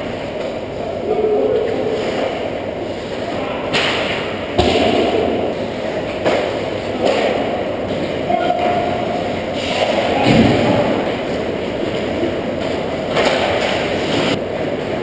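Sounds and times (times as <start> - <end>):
hockey sticks knocking puck: 6.1 - 8.8, 9.6 - 14.4
skates scraping ice: 11.0 - 15.0.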